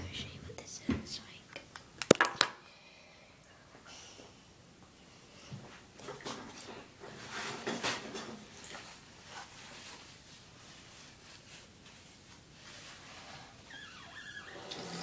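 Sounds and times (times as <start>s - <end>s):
rustling and scraping: 5.7s - 13.7s.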